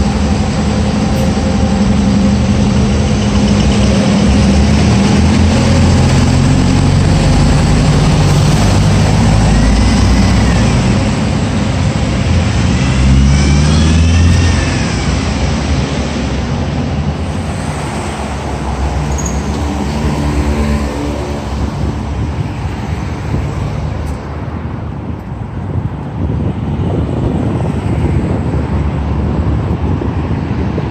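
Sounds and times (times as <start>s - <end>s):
vehicles passing: 0.0s - 30.9s.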